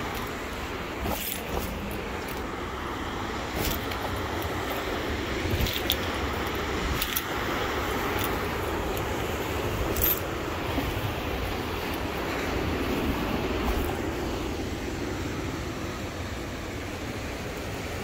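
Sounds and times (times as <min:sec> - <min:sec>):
low outdoor rumble: 0:00.0 - 0:18.0.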